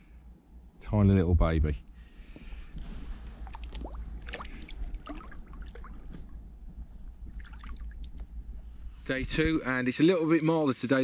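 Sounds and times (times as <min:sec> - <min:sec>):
water splashing and dripping: 0:03.4 - 0:08.4.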